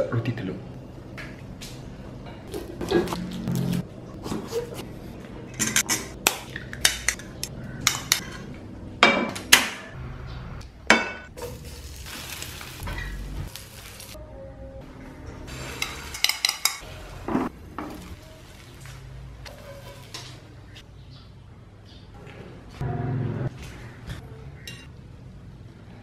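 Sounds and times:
kitchen utensils clattering: 0:05.5 - 0:09.7, 0:15.6 - 0:18.2, 0:19.5 - 0:20.8.

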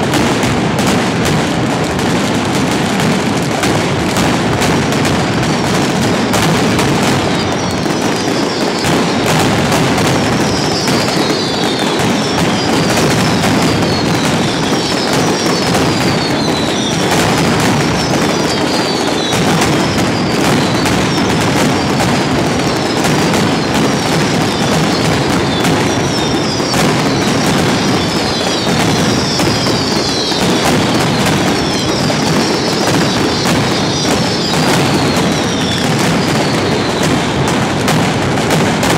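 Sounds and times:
firecrackers exploding: 0:00.0 - 0:38.9
falling whistles: 0:10.4 - 0:17.3, 0:17.9 - 0:21.2, 0:23.6 - 0:37.1.

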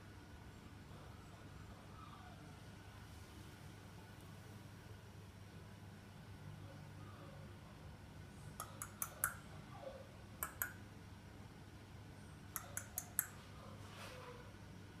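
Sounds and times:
low room hum: 0:00.0 - 0:15.0
tongue clicks: 0:08.6 - 0:09.5, 0:10.4 - 0:10.8, 0:12.5 - 0:13.4.

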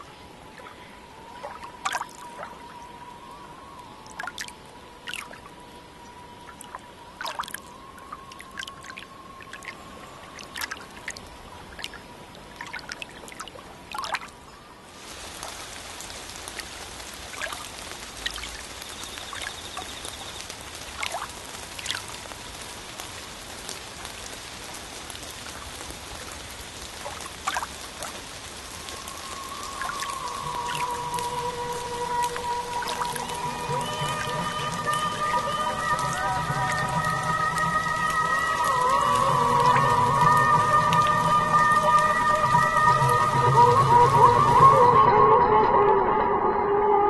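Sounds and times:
water trickling: 0:00.0 - 0:44.7
water drops dripping: 0:01.4 - 0:02.6, 0:04.0 - 0:05.5, 0:06.5 - 0:12.0, 0:12.6 - 0:14.3, 0:15.4 - 0:22.2, 0:25.2 - 0:43.2.

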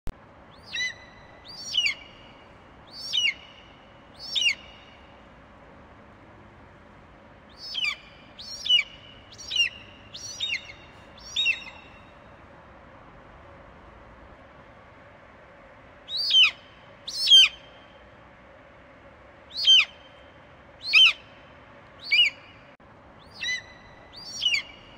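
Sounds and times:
eagle piping calls: 0:00.5 - 0:05.0, 0:07.5 - 0:12.0, 0:16.1 - 0:17.7, 0:19.5 - 0:20.2, 0:20.8 - 0:21.3, 0:22.0 - 0:22.6, 0:23.2 - 0:24.9.

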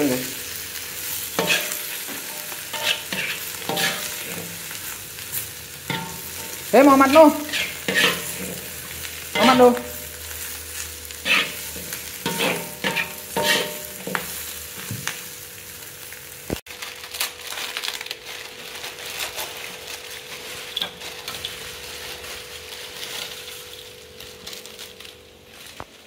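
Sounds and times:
food sizzling in oil: 0:00.0 - 0:26.0
metal spatula scraping wok: 0:01.0 - 0:14.8, 0:18.9 - 0:23.9.

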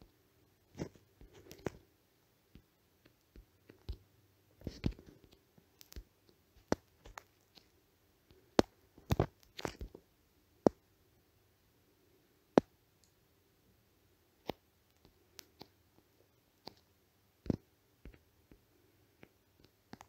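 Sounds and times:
sharp clicks and taps: 0:02.5 - 0:07.7, 0:08.3 - 0:10.0.

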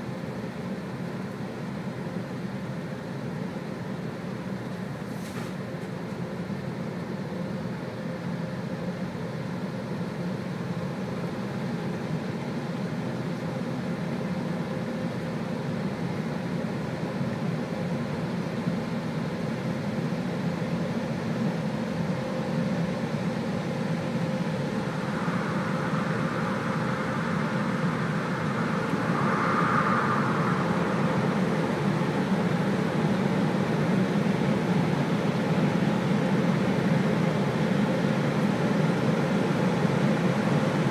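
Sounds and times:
car wash machine hum and rush: 0:23.7 - 0:34.3.

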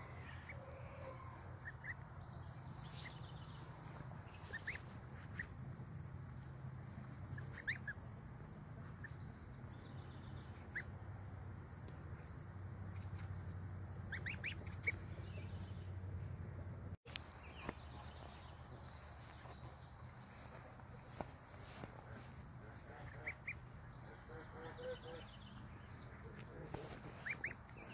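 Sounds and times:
goslings peeping: 0:02.7 - 0:05.6, 0:07.2 - 0:08.1, 0:10.4 - 0:11.0, 0:14.0 - 0:15.7, 0:17.6 - 0:27.9.

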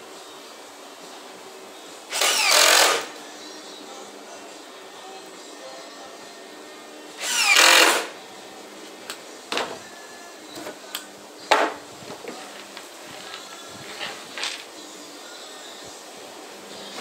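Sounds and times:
cordless drill driving screw: 0:02.1 - 0:03.1, 0:07.2 - 0:08.1.

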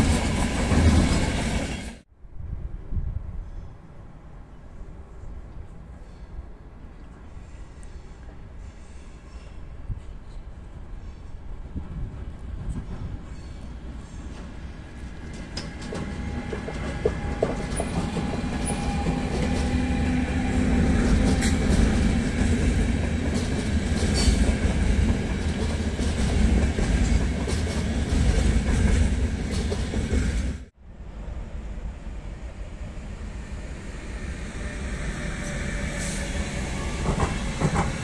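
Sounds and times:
train wheels rumbling on rails: 0:00.0 - 0:02.1, 0:07.4 - 0:38.0
locomotive hum: 0:12.2 - 0:38.0
wheels clacking over rail joints: 0:14.3 - 0:30.4, 0:36.7 - 0:38.0.

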